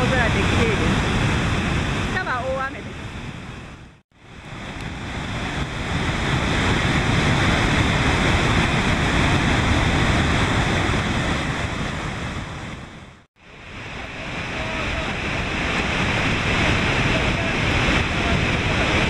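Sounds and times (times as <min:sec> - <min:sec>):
waterfall roaring: 0:00.0 - 0:19.0
wind on microphone: 0:00.0 - 0:19.0.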